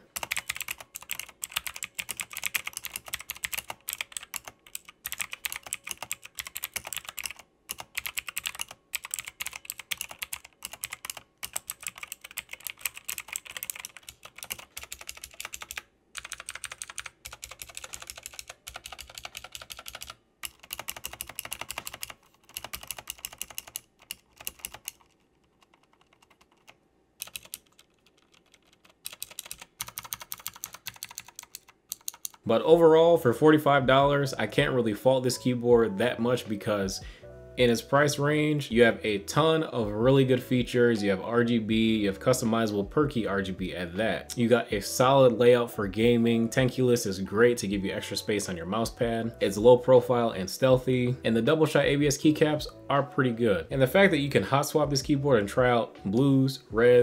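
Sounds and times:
mechanical keyboard typing: 0.1 - 32.4.

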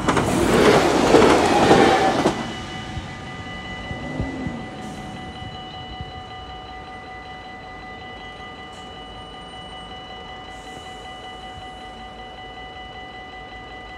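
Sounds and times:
level crossing warning bell: 0.0 - 13.9
low rumble: 2.1 - 6.5.

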